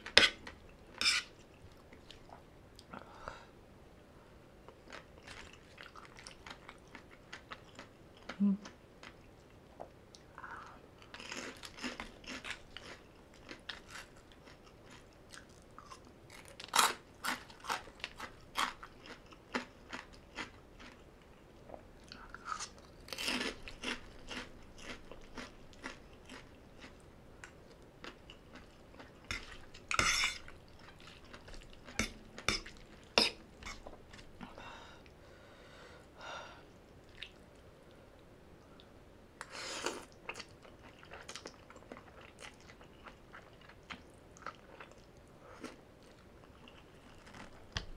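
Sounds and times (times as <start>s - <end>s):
chewing and crunching: 4.7s - 8.4s, 11.0s - 34.3s, 40.2s - 47.9s.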